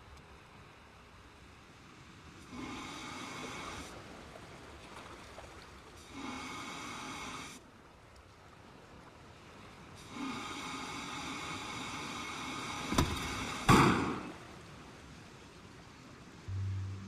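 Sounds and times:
machine humming drone: 0:16.5 - 0:17.0.

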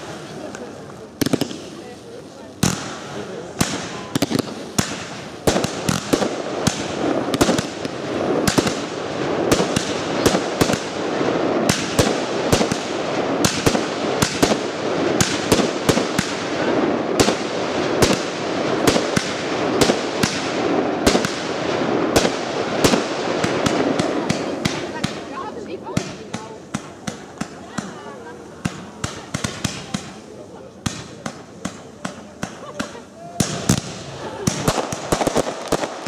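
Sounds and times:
fireworks launches: 0:00.0 - 0:36.0
fireworks shells bursting: 0:30.8 - 0:36.0.

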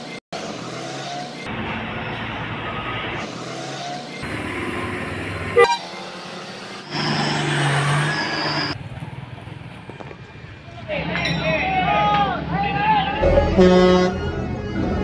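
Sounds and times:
bus and truck engines running: 0:00.0 - 0:15.0
horn toot: 0:05.6 - 0:06.1, 0:13.2 - 0:15.0.

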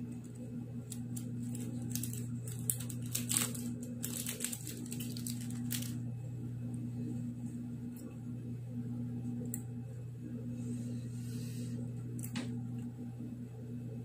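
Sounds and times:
steady low hum: 0:00.0 - 0:14.0
plastic wrapper crinkling: 0:00.1 - 0:06.0.

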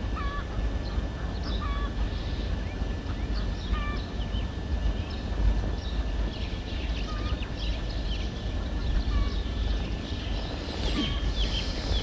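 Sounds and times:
steady low rumble: 0:00.0 - 0:12.0
birds chirping and calling: 0:03.1 - 0:04.4, 0:05.1 - 0:12.0.

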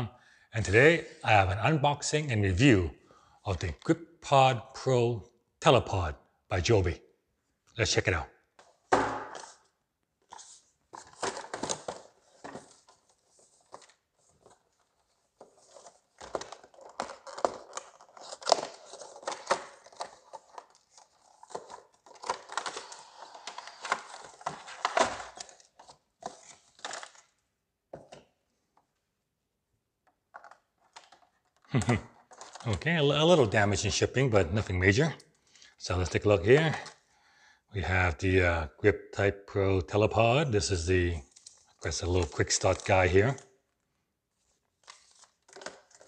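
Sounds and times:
paper leaflets crinkling: 0:10.2 - 0:27.3, 0:41.3 - 0:43.4, 0:44.4 - 0:46.0
cardboard box being unpacked: 0:10.3 - 0:27.3.

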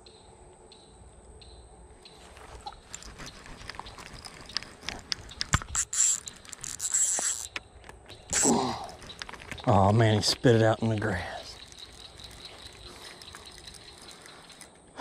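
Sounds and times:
rustling handling noise: 0:02.1 - 0:14.9
fishing reel clicking: 0:02.9 - 0:09.7, 0:11.5 - 0:14.7.

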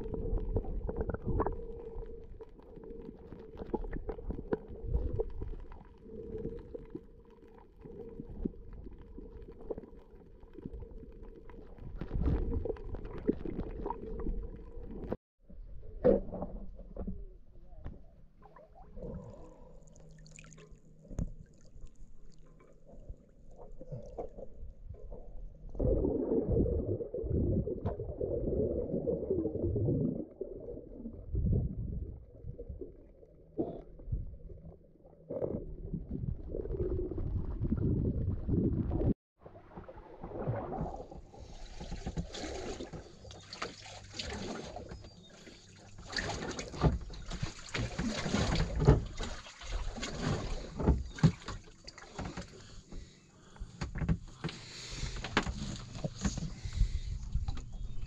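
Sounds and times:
water splashing around boat: 0:36.3 - 0:58.0.

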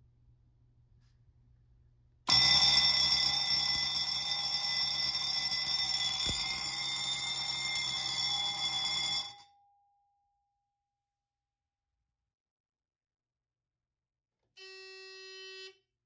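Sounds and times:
fire alarm bell ringing: 0:02.3 - 0:09.7.

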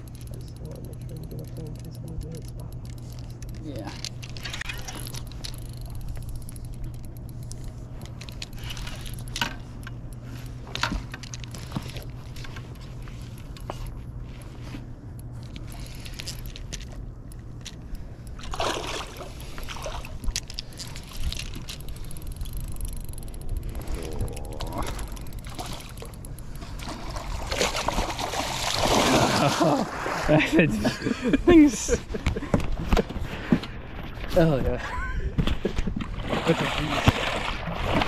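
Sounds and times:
steady low hum: 0:00.0 - 0:38.0
water splashing against boat: 0:18.3 - 0:21.7, 0:24.6 - 0:30.9, 0:35.4 - 0:38.0.

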